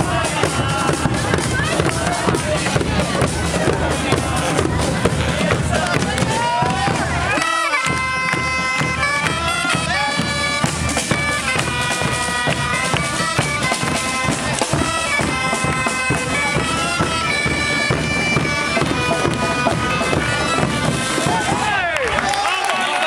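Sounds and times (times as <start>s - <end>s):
percussive beats: 0.0s - 22.2s
bagpipes playing melody: 6.6s - 21.8s.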